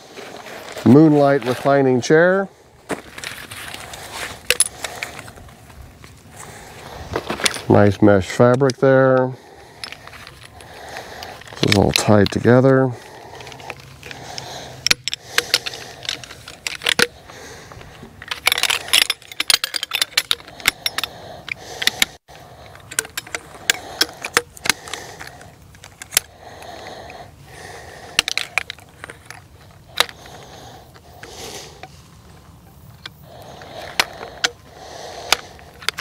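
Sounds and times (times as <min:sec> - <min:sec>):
chair poles clicking: 0:13.2 - 0:32.0.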